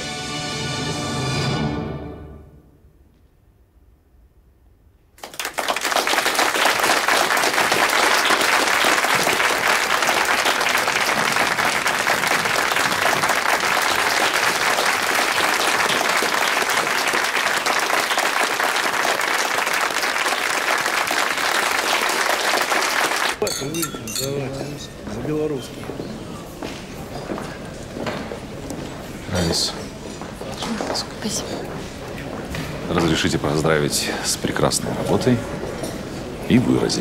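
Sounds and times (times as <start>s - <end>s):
audience applauding: 5.2s - 23.5s.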